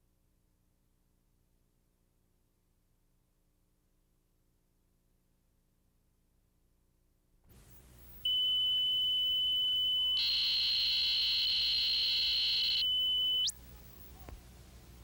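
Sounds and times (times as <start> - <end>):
high-pitched electronic test tone: 8.3 - 13.6.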